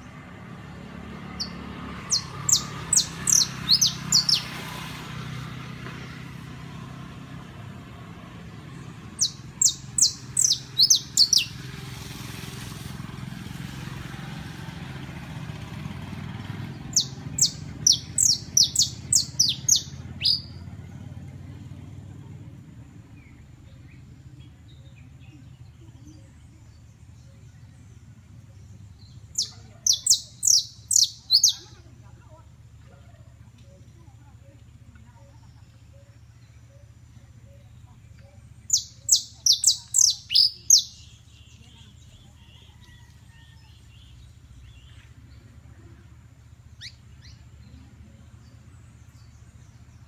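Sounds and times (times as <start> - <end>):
finch chirping: 1.4 - 4.5, 9.2 - 11.6, 16.9 - 20.6, 29.0 - 31.8, 38.7 - 41.7.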